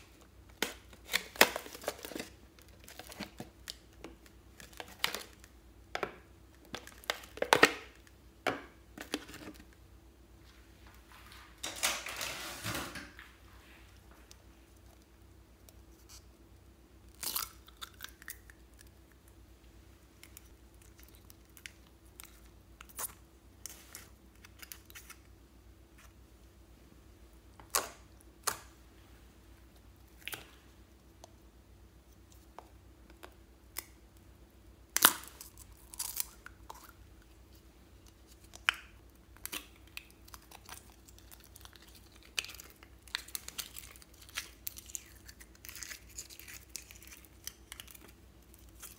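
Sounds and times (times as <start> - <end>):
faint steady hum: 0.0 - 48.9
slime squishing: 34.9 - 48.9.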